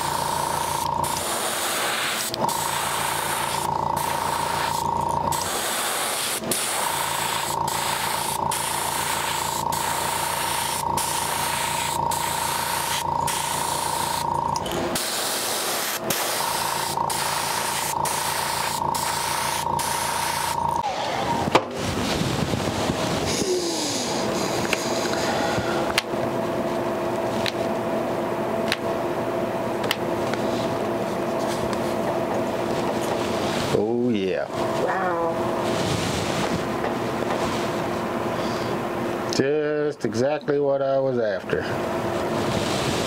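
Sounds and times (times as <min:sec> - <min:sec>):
airbrush spraying hiss: 0:00.0 - 0:20.8
air compressor humming: 0:00.0 - 0:43.0.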